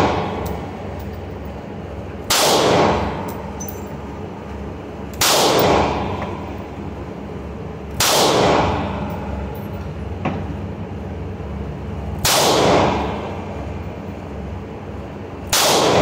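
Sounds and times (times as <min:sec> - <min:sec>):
steady low hum: 0:00.0 - 0:16.0
pistol shots echoing: 0:02.3 - 0:03.2, 0:05.2 - 0:06.1, 0:08.0 - 0:08.8, 0:12.2 - 0:13.2, 0:15.5 - 0:16.0.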